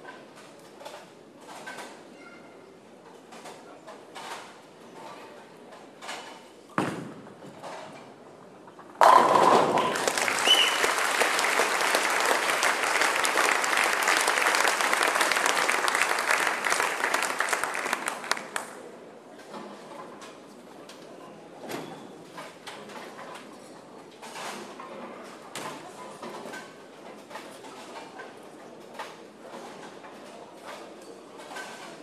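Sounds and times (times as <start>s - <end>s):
ball crashing into pins: 6.8s - 7.4s, 9.0s - 10.8s
bowling ball thud on lane: 9.0s - 10.8s
applause: 9.0s - 18.8s.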